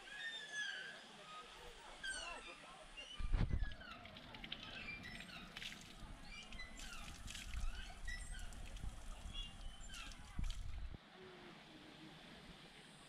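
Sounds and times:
birds chirping: 0:00.0 - 0:11.0
water running from a spout: 0:03.4 - 0:11.0
hands scooping splashing water: 0:05.4 - 0:10.8.

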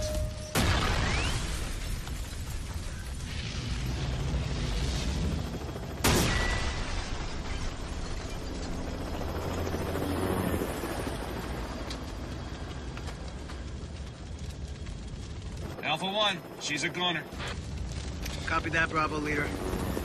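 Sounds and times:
explosion blast: 0:00.0 - 0:04.7
low rumble of burning: 0:00.0 - 0:20.0.

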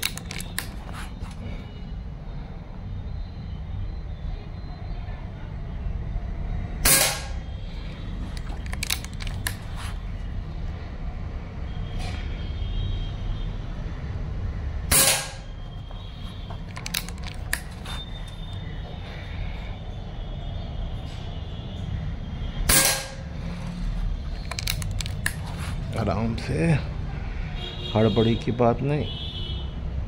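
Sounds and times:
small sharp clicks: 0:00.0 - 0:00.8, 0:16.7 - 0:17.8, 0:24.4 - 0:25.4
air rifle shots: 0:14.9 - 0:15.4, 0:22.7 - 0:23.2.

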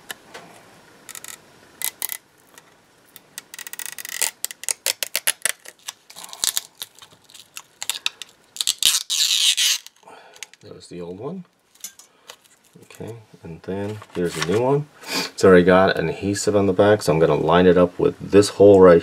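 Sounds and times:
adhesive film crackling and tearing: 0:01.1 - 0:10.7, 0:11.6 - 0:12.9.

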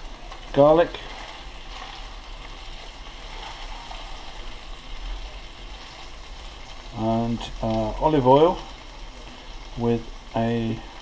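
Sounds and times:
fish sizzling in frying pan: 0:00.0 - 0:11.0
wooden spatula stirring: 0:00.3 - 0:06.9.

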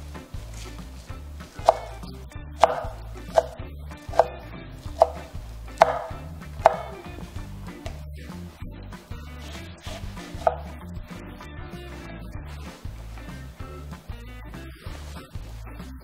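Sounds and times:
background music: 0:00.0 - 0:16.0
knife chopping on cutting board: 0:01.6 - 0:02.0, 0:02.6 - 0:07.1, 0:09.4 - 0:10.8.

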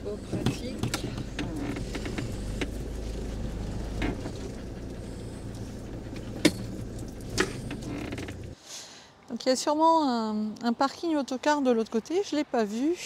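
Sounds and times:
engine low rumble: 0:00.0 - 0:08.6.

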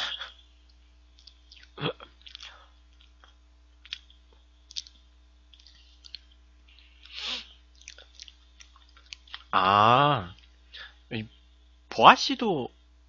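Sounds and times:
person chewing: 0:01.1 - 0:09.6.

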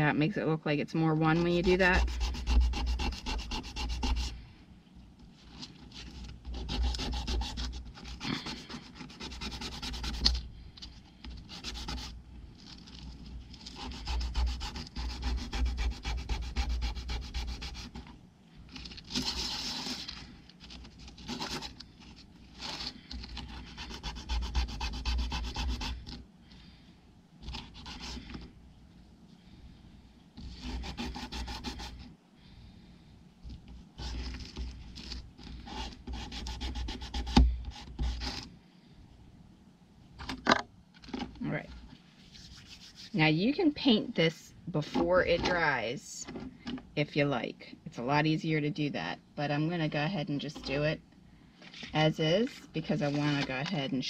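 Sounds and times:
wood being hand-sanded: 0:01.4 - 0:04.3, 0:05.9 - 0:10.3, 0:11.5 - 0:12.1, 0:13.7 - 0:18.0, 0:23.4 - 0:26.1, 0:30.4 - 0:32.0, 0:35.6 - 0:38.4, 0:42.3 - 0:43.2.

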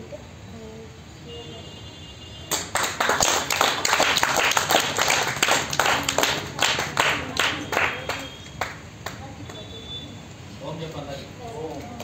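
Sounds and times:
group of people clapping: 0:02.4 - 0:09.7.

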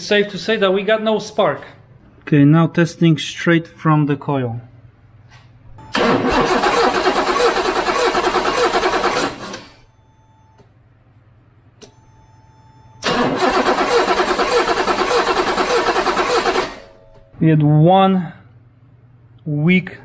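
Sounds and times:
starter cranking engine: 0:06.0 - 0:09.7, 0:13.0 - 0:16.9.

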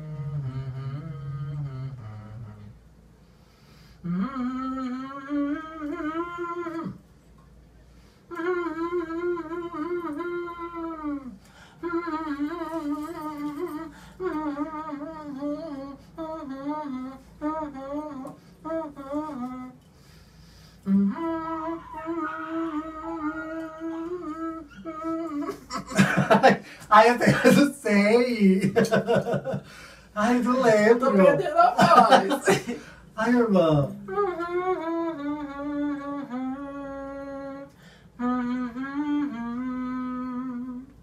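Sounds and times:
person humming a melody: 0:00.0 - 0:02.9, 0:04.0 - 0:07.0, 0:08.3 - 0:19.9, 0:20.8 - 0:26.5, 0:33.6 - 0:41.0.

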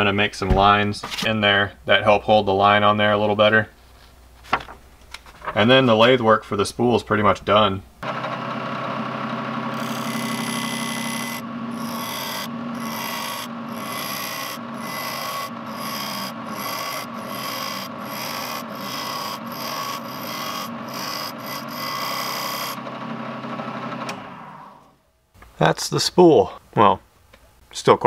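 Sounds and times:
wood lathe humming: 0:08.0 - 0:24.9
cutting tool scraping wood: 0:09.7 - 0:22.8.

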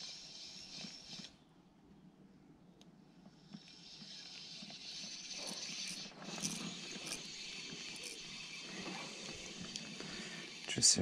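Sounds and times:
fishing reel whirring: 0:00.0 - 0:01.4, 0:03.4 - 0:11.0
fishing reel clicks: 0:03.6 - 0:08.6.

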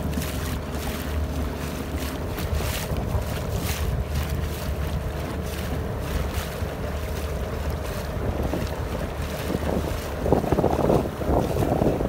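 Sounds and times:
waves around a boat: 0:00.0 - 0:12.0
wind buffeting microphone: 0:00.0 - 0:12.0.

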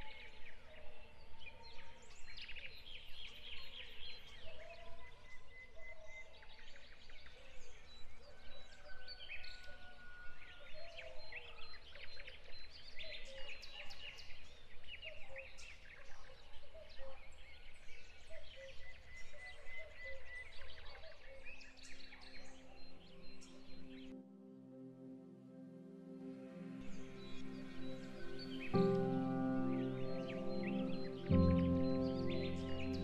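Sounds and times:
soft music: 0:21.9 - 0:33.0
birds chirping: 0:26.1 - 0:33.0.

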